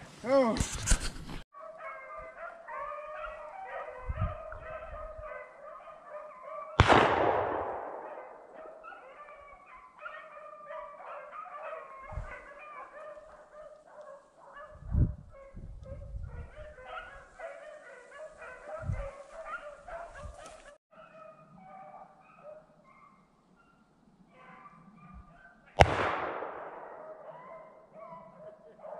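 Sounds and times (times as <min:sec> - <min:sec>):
hunting dogs baying: 0:01.6 - 0:06.8, 0:07.9 - 0:25.7, 0:26.7 - 0:28.9
loud gunshot echoing: 0:06.8 - 0:08.6, 0:25.8 - 0:27.2.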